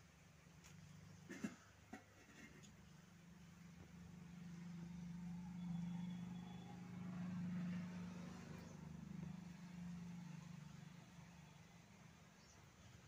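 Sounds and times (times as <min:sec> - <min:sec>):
faint high tone: 0:05.2 - 0:07.7.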